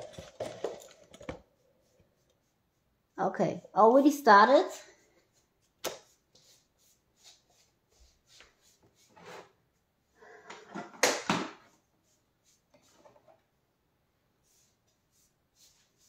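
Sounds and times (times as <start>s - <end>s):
paintbrush scraping and dabbing: 0.0s - 10.2s, 11.7s - 13.6s, 14.3s - 16.0s.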